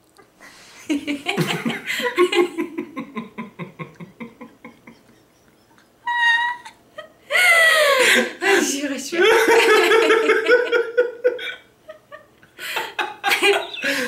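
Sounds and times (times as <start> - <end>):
man and woman laughing: 0.8 - 8.3, 9.2 - 14.0.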